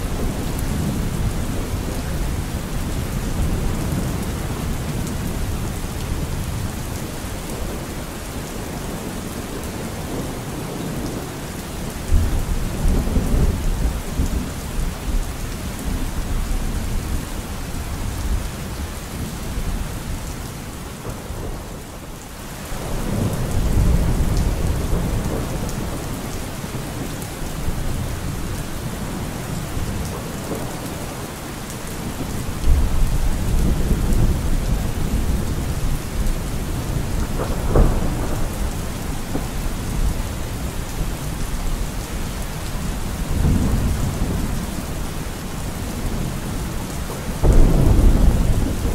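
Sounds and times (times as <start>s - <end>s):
steady rain: 0.0s - 48.9s
low rolling thunder: 22.8s - 26.3s, 32.1s - 42.1s, 42.7s - 48.9s
sharp thunderclap: 37.2s - 39.5s, 47.4s - 48.9s.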